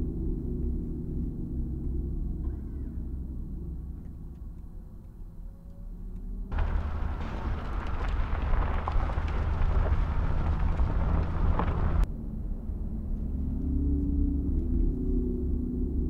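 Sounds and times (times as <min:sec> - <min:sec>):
tyres rolling over gravel: 0:06.5 - 0:12.1.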